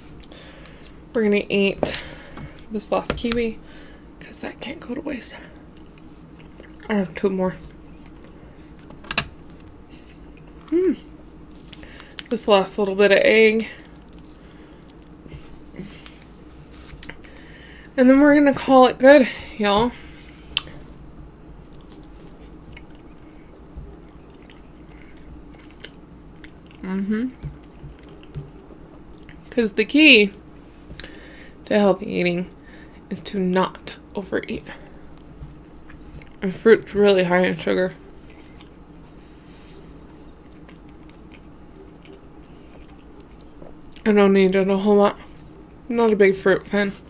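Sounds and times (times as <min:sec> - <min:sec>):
person chewing: 0:05.6 - 0:06.9, 0:09.6 - 0:12.3, 0:20.2 - 0:29.5, 0:37.9 - 0:44.0.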